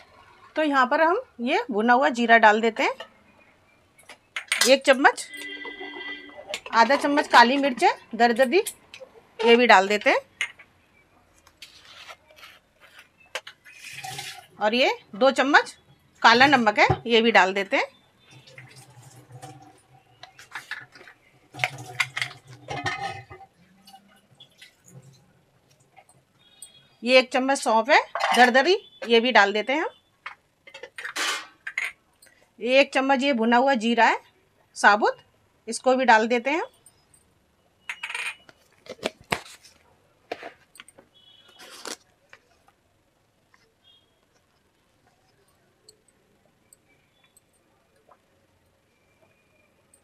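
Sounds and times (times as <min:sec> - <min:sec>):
metal spoon scraping metal pot: 0:20.2 - 0:24.1
metal utensils striking pan: 0:22.0 - 0:23.4.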